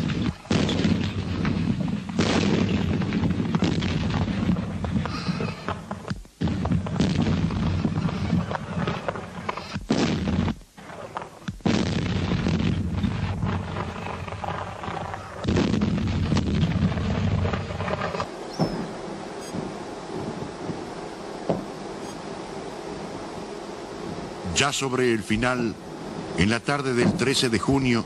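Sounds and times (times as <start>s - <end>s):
artillery guns firing: 0.0s - 19.0s.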